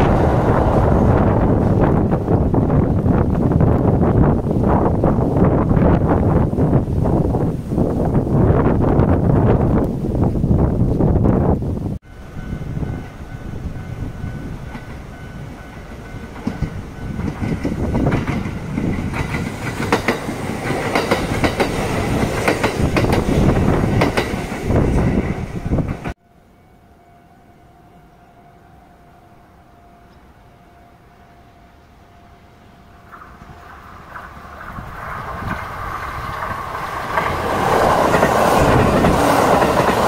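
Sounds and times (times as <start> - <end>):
train wheels clattering: 12.6 - 26.2, 33.1 - 40.0.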